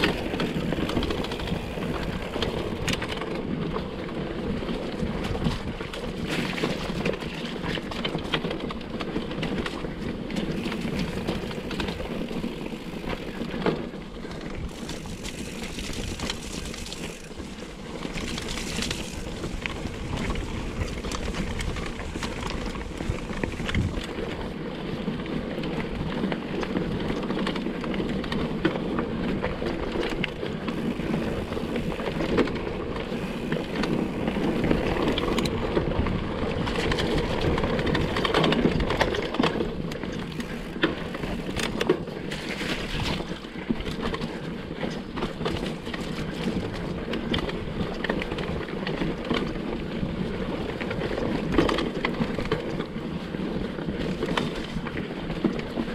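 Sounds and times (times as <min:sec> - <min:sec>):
bike rattling: 0:00.0 - 0:55.9
mountain bike tyre noise: 0:00.0 - 0:55.9.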